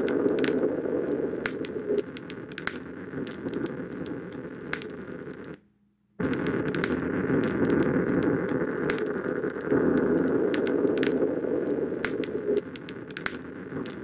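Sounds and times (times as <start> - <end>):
sharp clicks: 0.0 - 5.6, 6.2 - 14.0
crackling noise and hiss: 0.0 - 14.0.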